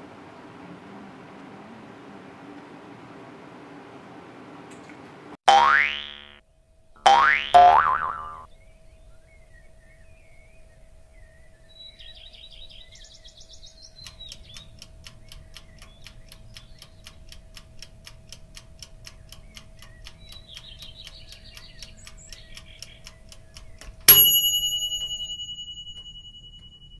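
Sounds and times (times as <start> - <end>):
birds chirping: 7.1 - 24.3
clock ticking: 14.0 - 24.4
loud bell ding: 24.1 - 26.9.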